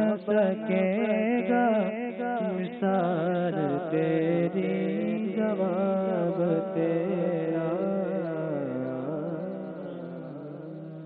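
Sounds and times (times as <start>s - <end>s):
man singing ornamented melody: 0.0s - 11.0s.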